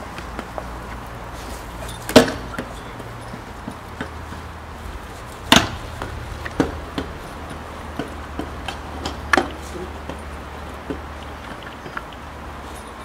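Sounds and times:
scooter wheels clacking and rattling: 0:00.0 - 0:13.0
scooter slamming on asphalt: 0:02.0 - 0:04.5, 0:05.3 - 0:10.2.

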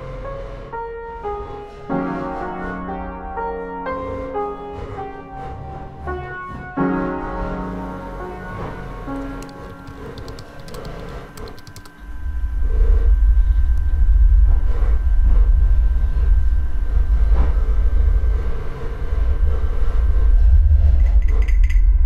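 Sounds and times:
deep steady rumble: 0:12.0 - 0:22.0.

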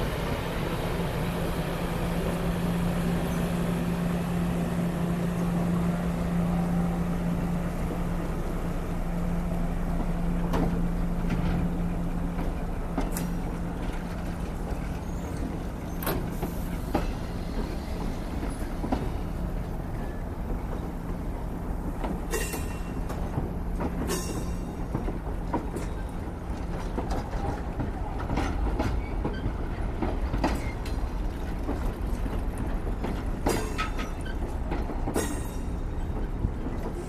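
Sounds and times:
train rumbling past: 0:00.0 - 0:37.0
wheels clicking on rails: 0:09.9 - 0:37.0.

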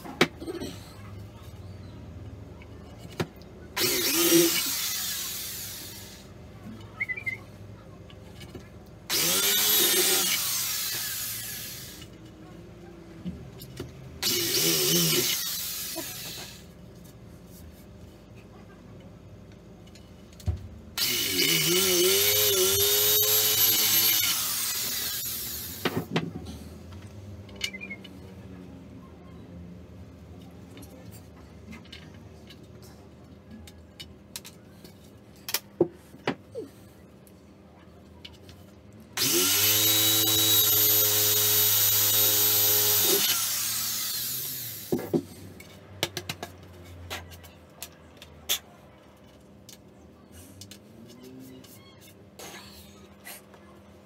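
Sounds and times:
electric drill boring into wood: 0:03.8 - 0:06.2, 0:09.1 - 0:12.0, 0:14.2 - 0:16.6, 0:21.0 - 0:26.0, 0:39.2 - 0:45.0.

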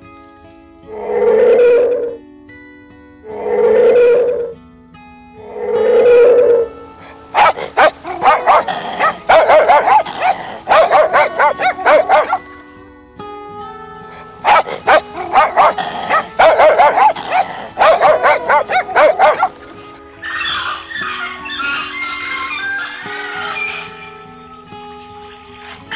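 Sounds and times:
background music: 0:00.0 - 0:25.9
dog barking: 0:07.0 - 0:12.5, 0:14.1 - 0:24.1.

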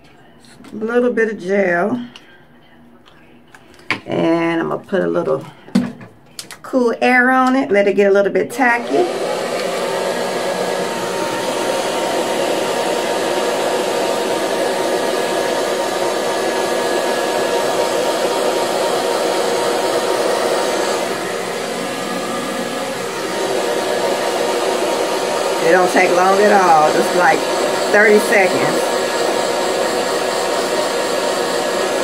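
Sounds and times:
hair dryer blowing: 0:08.6 - 0:32.0.

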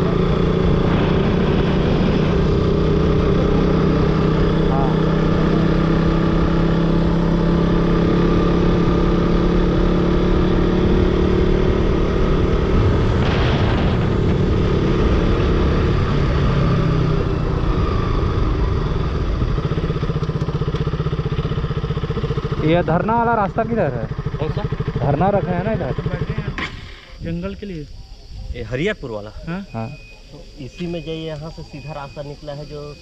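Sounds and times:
motorcycle engine running: 0:00.0 - 0:27.8.

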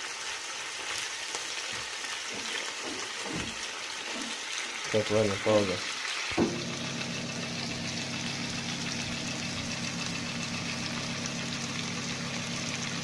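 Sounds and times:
liver sizzling in a pan: 0:00.0 - 0:13.0
low hum: 0:06.4 - 0:13.0.

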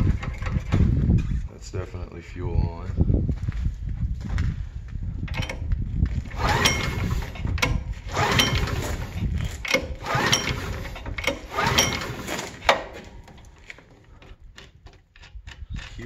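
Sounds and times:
engine recoil cord cranking: 0:05.3 - 0:16.0.

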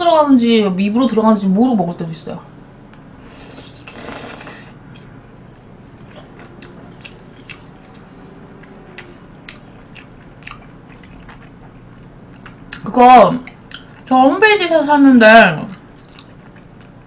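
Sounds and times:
person slurping: 0:03.3 - 0:04.8
chewing with light clicks: 0:04.9 - 0:05.1, 0:05.8 - 0:14.7, 0:15.7 - 0:17.0.

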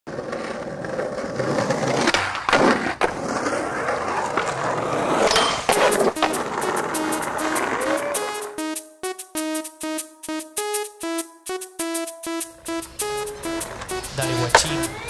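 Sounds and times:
skateboard clacks: 0:00.1 - 0:08.0, 0:13.2 - 0:15.0
skateboard wheels rolling on asphalt: 0:00.1 - 0:08.2, 0:12.6 - 0:15.0.

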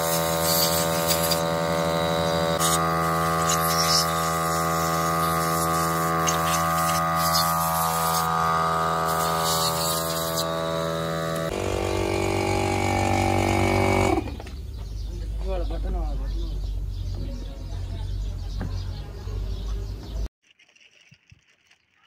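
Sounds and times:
machine droning: 0:00.0 - 0:15.0.

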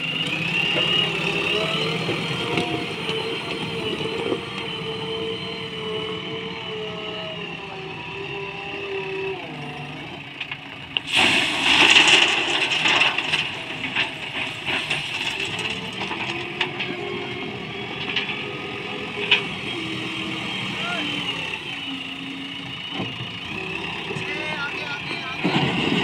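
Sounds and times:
diesel engine running: 0:00.0 - 0:26.0
stones clattering into truck body: 0:11.1 - 0:16.4.

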